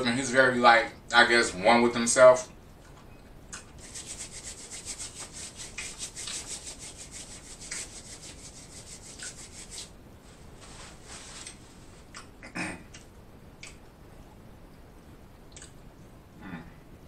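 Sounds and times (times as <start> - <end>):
hands rubbing with napkin: 3.8 - 12.1.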